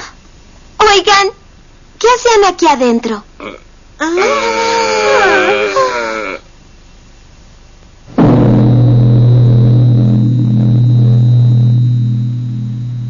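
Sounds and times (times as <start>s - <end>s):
deep gong ringing: 8.2s - 13.0s.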